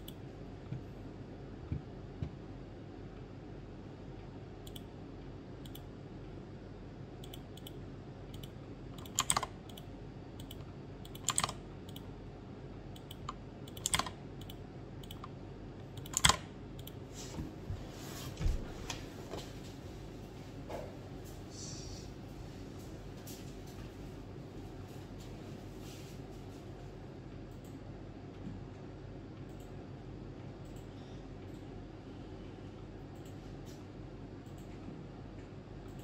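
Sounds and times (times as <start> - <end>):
computer keys clicking: 0.0 - 0.2, 4.6 - 4.9, 5.6 - 5.9, 7.2 - 12.1, 12.9 - 17.0
steady low hum: 0.0 - 36.0.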